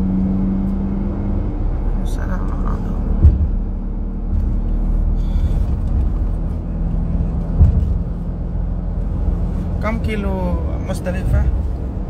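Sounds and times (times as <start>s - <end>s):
car engine and tyres rumbling: 0.0s - 12.0s
short low thump: 3.0s - 8.4s.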